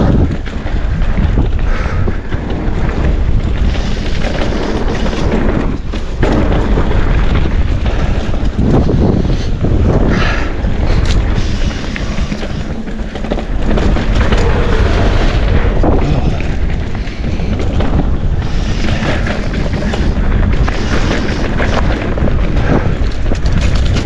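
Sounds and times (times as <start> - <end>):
bike jolting over bumps: 0.0 - 24.0
rumble of bike tyres on dirt: 0.0 - 24.0
wind rushing over microphone: 0.0 - 24.0.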